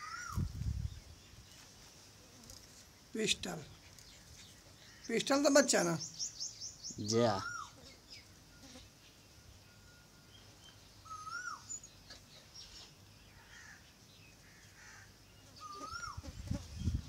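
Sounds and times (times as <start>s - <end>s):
rising and falling bird call: 0.0s - 0.5s, 6.0s - 7.8s, 11.0s - 11.8s, 15.6s - 16.2s
birds chirping: 0.0s - 17.0s.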